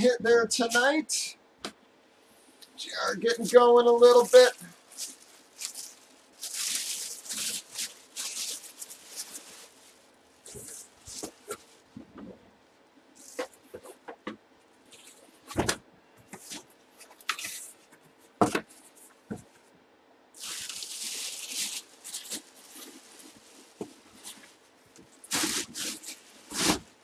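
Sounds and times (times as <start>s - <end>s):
plastic wrapping crinkling: 2.9s - 12.4s, 14.7s - 15.7s, 16.3s - 19.6s, 20.4s - 27.0s.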